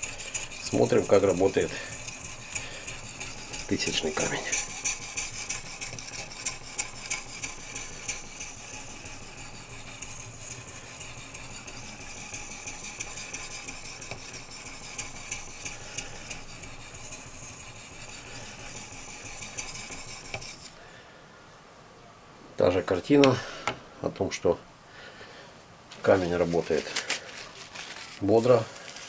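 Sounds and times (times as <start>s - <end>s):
sharpening stone scraping steel blade: 0.0s - 20.8s.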